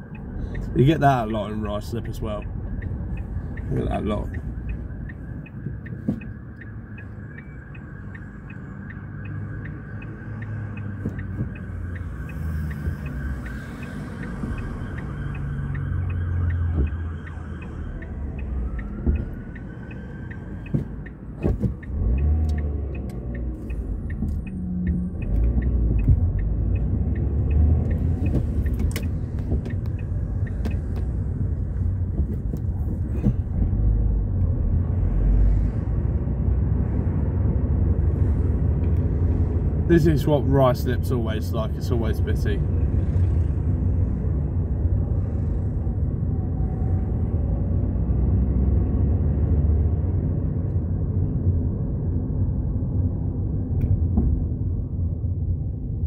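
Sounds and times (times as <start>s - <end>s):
car engine and road rumble: 0.0s - 56.0s
car turn indicator ticking: 0.1s - 14.4s, 15.0s - 33.4s.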